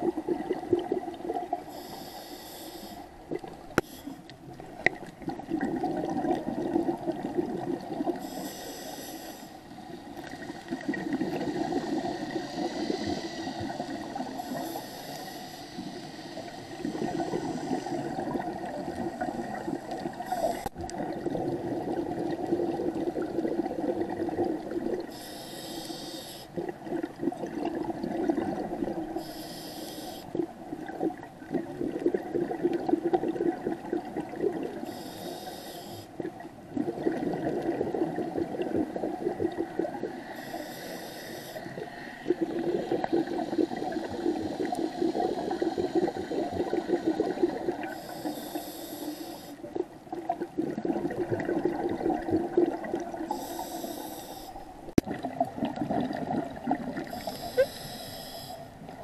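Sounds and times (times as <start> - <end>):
rumbling exhaled bubbles: 0.0 - 1.6, 4.5 - 8.2, 10.2 - 14.5, 16.8 - 25.1, 26.6 - 29.2, 30.4 - 34.8, 36.2 - 40.2, 41.8 - 47.9, 49.7 - 53.3, 55.0 - 57.3
regulator inhalation hiss: 1.7 - 3.1, 3.8 - 4.3, 8.2 - 9.9, 11.5 - 18.2, 20.2 - 20.7, 25.0 - 26.6, 29.2 - 30.4, 34.8 - 36.2, 40.2 - 49.6, 53.3 - 54.6, 57.1 - 58.7.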